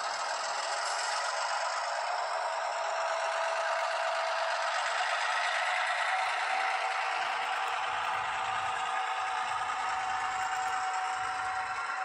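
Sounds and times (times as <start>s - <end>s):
thin diesel engine from small speaker: 0.0s - 12.0s.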